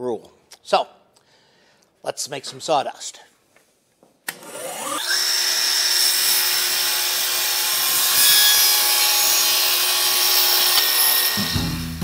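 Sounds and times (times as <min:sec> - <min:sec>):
table saw cutting wood: 0:04.3 - 0:12.0.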